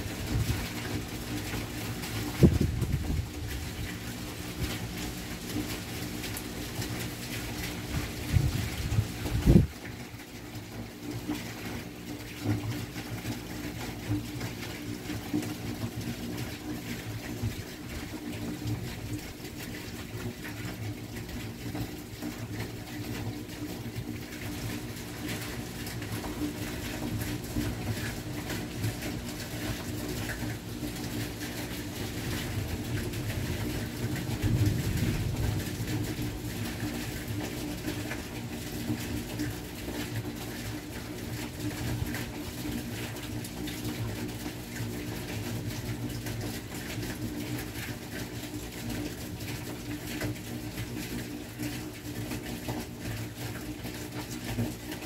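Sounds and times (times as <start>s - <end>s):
rain: 0.0s - 55.0s
wind noise: 2.4s - 3.3s, 8.3s - 9.7s.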